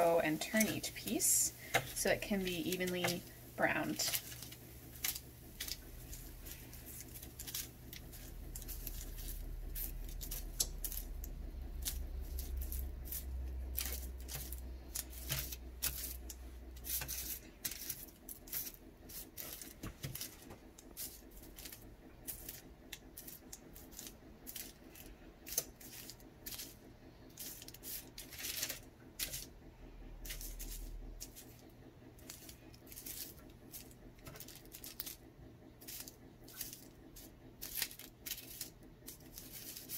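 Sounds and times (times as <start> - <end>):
metal tongs scraping baking sheet: 0.0 - 11.1, 11.8 - 19.7
low hum: 0.0 - 39.9.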